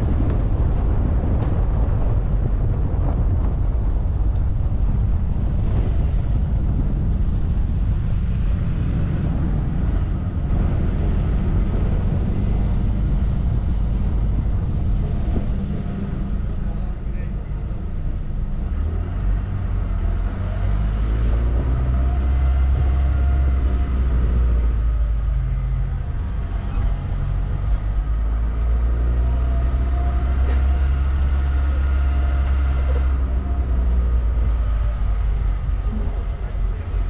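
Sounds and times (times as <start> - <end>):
car engine and road noise: 0.0 - 37.0
faint engine tone: 8.4 - 37.0.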